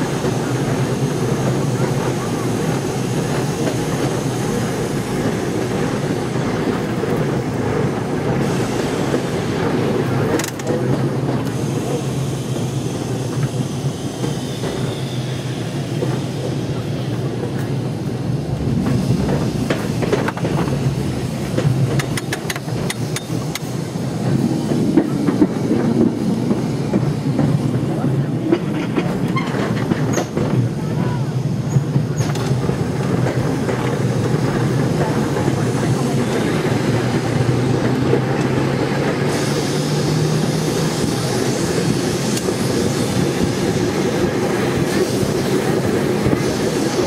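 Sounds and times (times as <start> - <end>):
steel wheels rumbling on rails: 0.0 - 47.0
sharp clicks from wheels: 5.2 - 12.4, 18.8 - 27.8, 31.7 - 46.6.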